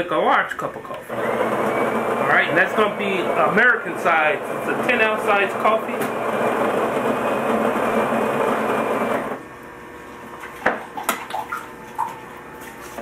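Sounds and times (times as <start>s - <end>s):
coffee grinder whirring: 1.0s - 9.5s.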